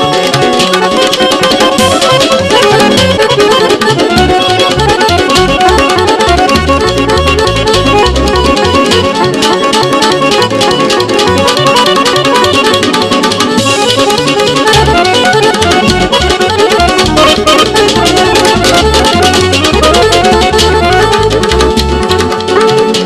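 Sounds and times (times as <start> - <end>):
accordion melody: 0.0 - 23.0
electric guitar: 0.0 - 23.0
steady drum beat: 0.2 - 9.2, 13.5 - 22.9.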